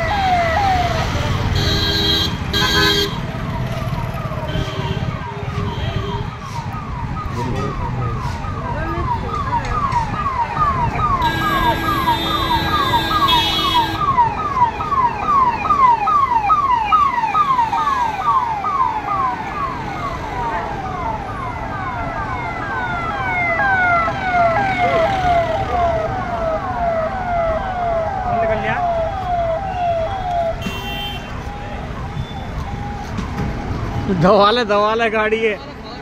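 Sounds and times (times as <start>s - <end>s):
electronic siren wailing: 0.0s - 1.5s, 3.2s - 33.6s
second siren: 0.0s - 1.5s, 3.2s - 34.7s
horn blaring: 11.2s - 14.1s, 28.5s - 31.5s.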